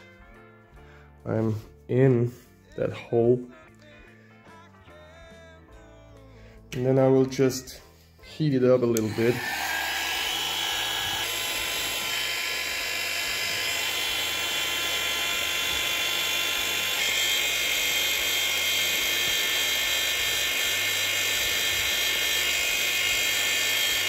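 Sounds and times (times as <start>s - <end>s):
heat gun blowing: 9.0s - 24.0s.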